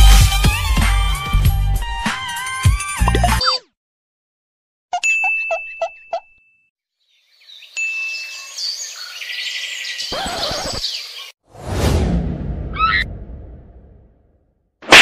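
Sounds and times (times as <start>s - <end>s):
chirping chime effect: 5.0s - 6.7s.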